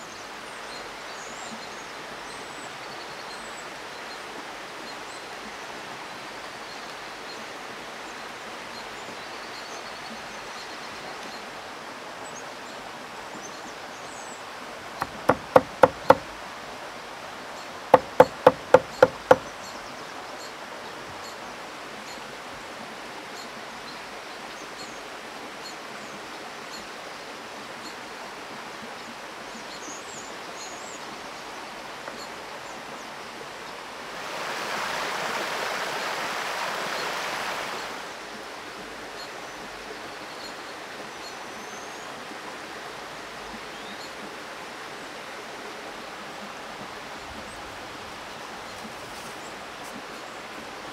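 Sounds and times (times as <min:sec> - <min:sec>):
stream running over rocks: 0:00.0 - 0:50.9
knife chopping on wooden board: 0:15.0 - 0:16.3, 0:18.0 - 0:19.4.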